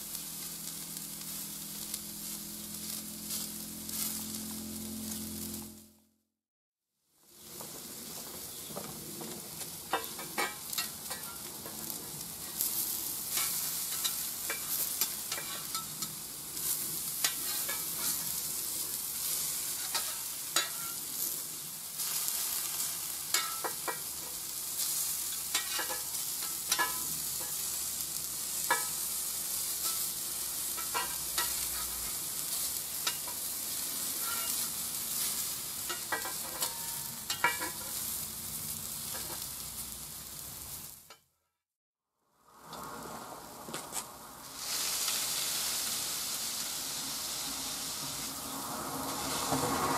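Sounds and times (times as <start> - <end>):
food sizzling on hot plate: 0.0 - 5.6, 7.2 - 41.2, 42.6 - 49.9
metal spatula scraping steel plate: 13.3 - 18.4, 19.2 - 21.0, 23.3 - 24.2, 25.3 - 27.7, 30.8 - 38.0.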